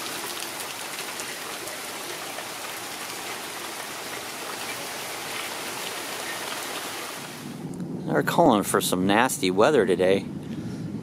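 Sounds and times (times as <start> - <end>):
steady outdoor hiss: 0.0 - 11.0.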